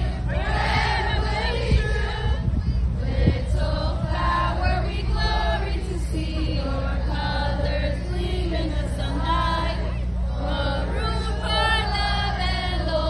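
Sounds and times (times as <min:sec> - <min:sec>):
group singing together: 0:00.0 - 0:13.0
low rumble: 0:00.0 - 0:13.0.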